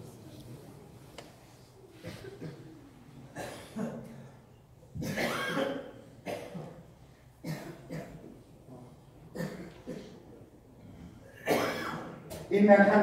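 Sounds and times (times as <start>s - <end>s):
men coughing: 2.0s - 4.4s, 5.0s - 8.3s, 9.3s - 10.2s, 11.2s - 12.2s
men clearing throats: 10.9s - 12.2s.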